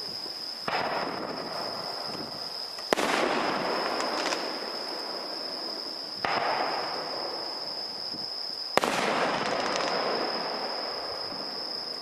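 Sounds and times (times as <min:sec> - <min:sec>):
fireworks booming: 0:00.6 - 0:12.0
firework bang: 0:00.7 - 0:02.3, 0:02.9 - 0:05.1, 0:06.2 - 0:07.3, 0:08.8 - 0:11.6.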